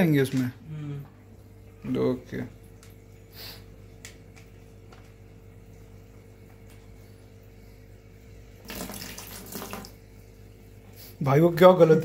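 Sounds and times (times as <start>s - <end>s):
steady low hum: 0.0s - 12.0s
water splashing into a bucket: 8.6s - 10.0s.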